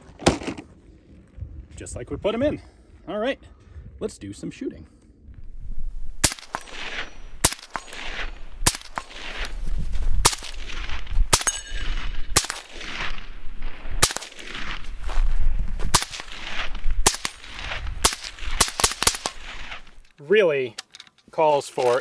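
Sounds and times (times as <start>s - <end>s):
suppressed rifle shots with echo: 6.2s - 9.5s, 10.2s - 14.8s, 15.9s - 19.9s
steel targets ringing: 11.4s - 12.7s.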